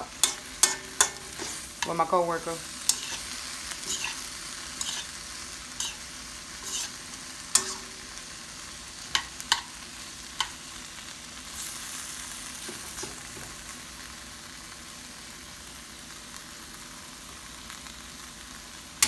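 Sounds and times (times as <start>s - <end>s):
food sizzling in a wok: 0.0s - 19.0s
sharp clicks in a pan: 0.2s - 2.0s, 2.9s - 3.2s, 7.6s - 8.0s, 9.1s - 9.7s, 10.4s - 10.6s.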